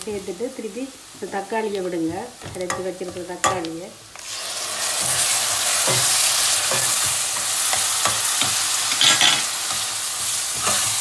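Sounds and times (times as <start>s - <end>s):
tomato sizzling in hot oil: 0.0s - 11.0s
metal spoon scraping pan: 5.0s - 9.9s, 10.5s - 11.0s.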